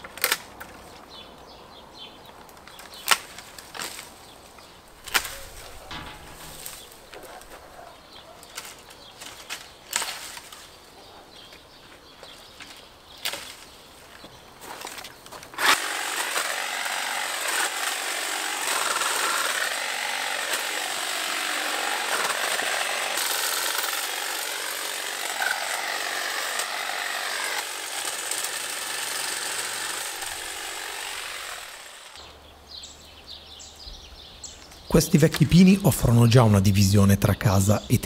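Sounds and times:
power saw cutting branches: 0:02.7 - 0:07.6, 0:08.4 - 0:10.8, 0:14.7 - 0:32.4, 0:34.7 - 0:38.0.

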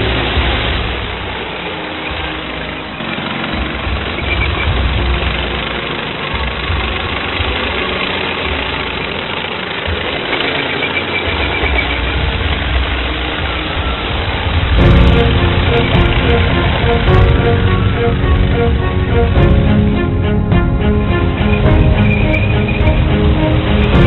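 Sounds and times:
music: 0:00.0 - 0:09.3, 0:11.3 - 0:24.0
model tank engine drone: 0:00.0 - 0:24.0
low rumble: 0:13.7 - 0:24.0.

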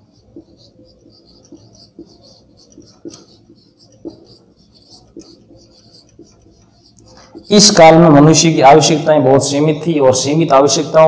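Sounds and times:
marker tip tapping board: 0:00.0 - 0:07.8
marker pen scratching on whiteboard: 0:00.0 - 0:09.0.

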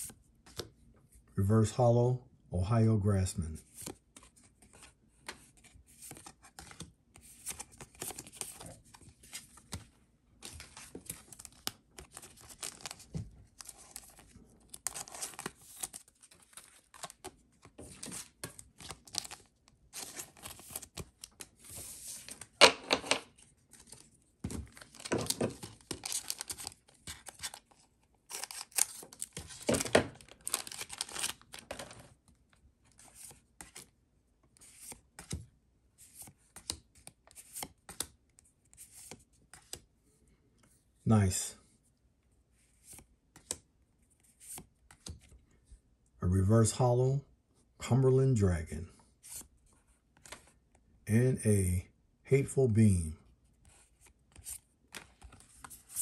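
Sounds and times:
cards rustling and sliding: 0:00.0 - 0:00.8, 0:03.6 - 0:33.9, 0:34.5 - 0:35.4, 0:36.0 - 0:39.9, 0:42.6 - 0:45.4, 0:49.2 - 0:50.6, 0:53.6 - 0:56.0
wrapper tearing and crinkling: 0:28.3 - 0:31.8.

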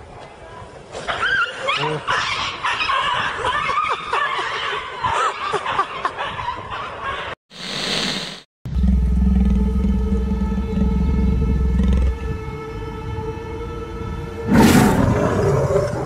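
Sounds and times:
low steady growl: 0:08.7 - 0:16.0.

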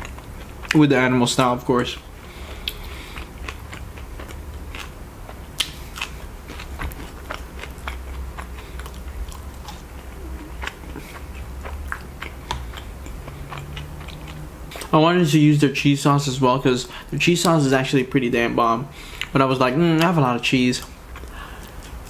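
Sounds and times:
chewing fries: 0:00.0 - 0:22.0
low steady hum: 0:00.0 - 0:22.0
mouth clicks and smacks: 0:05.6 - 0:14.9.

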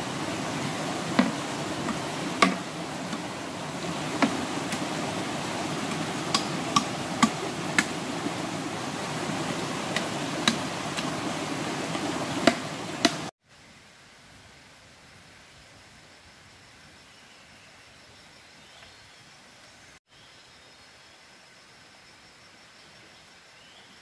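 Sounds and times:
forest stream rushing: 0:00.0 - 0:15.4
blade chopping bamboo: 0:01.2 - 0:03.4, 0:04.0 - 0:05.0, 0:05.8 - 0:08.1, 0:09.5 - 0:11.2, 0:11.9 - 0:13.3.

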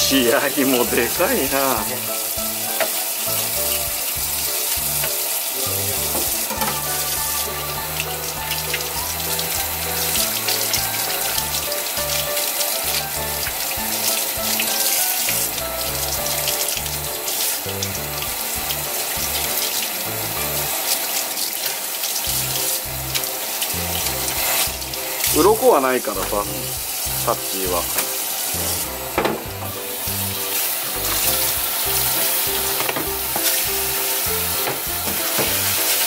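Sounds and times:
background music with bass: 0:00.0 - 0:20.7, 0:22.3 - 0:28.0, 0:28.6 - 0:36.0
tap running into steel sink: 0:29.2 - 0:29.8, 0:32.8 - 0:33.6, 0:34.6 - 0:35.6.

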